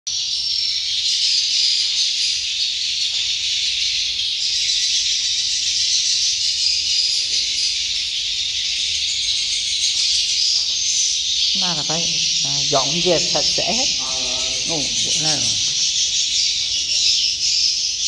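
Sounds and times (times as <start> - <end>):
swiftlets twittering chorus: 11.4 - 17.4.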